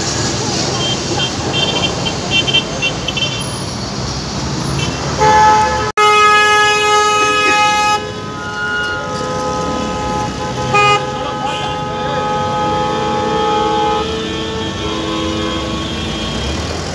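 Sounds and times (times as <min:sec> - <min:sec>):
busy street traffic: 0:00.0 - 0:16.9
loud vehicle horn blast: 0:04.8 - 0:16.6.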